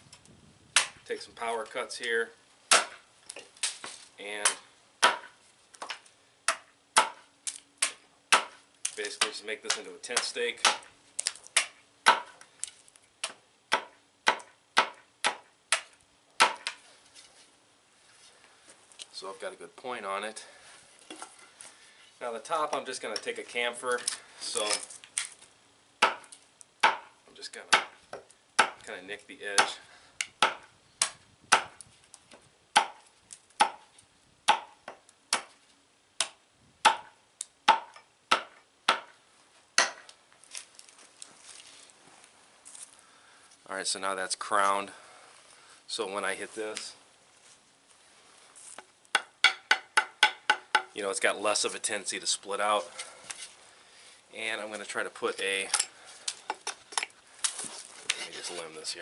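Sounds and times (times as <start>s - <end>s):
hatchet chopping wood: 0.8s - 1.0s, 2.7s - 3.0s, 4.4s - 12.4s, 13.2s - 16.8s, 26.0s - 28.8s, 29.6s - 31.8s, 32.7s - 35.6s, 36.2s - 39.2s, 39.8s - 40.2s, 49.1s - 51.0s.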